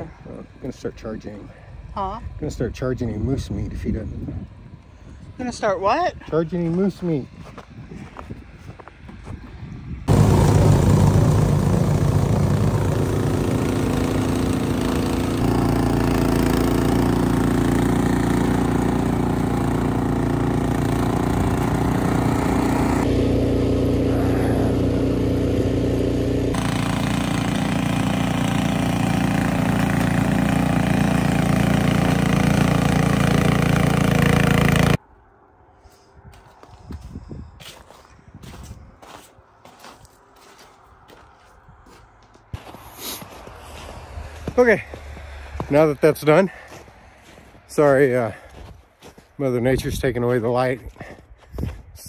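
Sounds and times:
snowblower engine running: 0:10.1 - 0:35.0.

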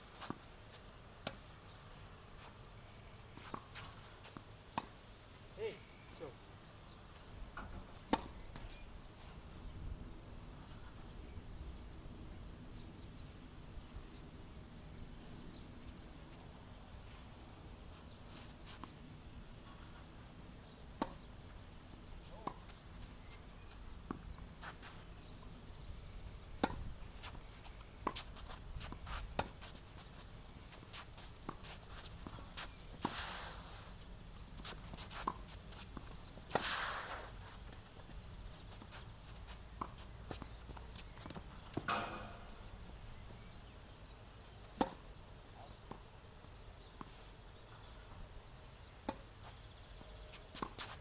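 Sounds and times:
tennis ball bouncing on court: 0:07.6 - 0:08.7, 0:21.0 - 0:21.3, 0:22.2 - 0:22.8, 0:26.5 - 0:27.4, 0:28.0 - 0:33.2, 0:34.6 - 0:42.7, 0:44.7 - 0:45.0
tennis ball struck by rackets: 0:21.0 - 0:21.3, 0:22.3 - 0:22.7, 0:26.6 - 0:26.9, 0:36.4 - 0:37.3, 0:39.8 - 0:42.7, 0:44.7 - 0:45.0.

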